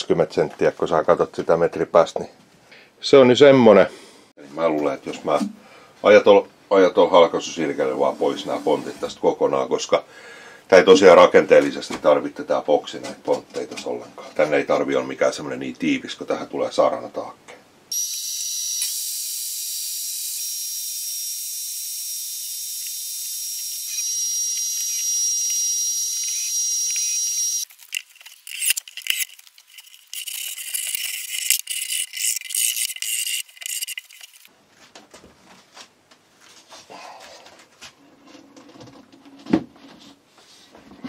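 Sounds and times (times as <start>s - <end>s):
table saw whining: 17.9s - 27.7s.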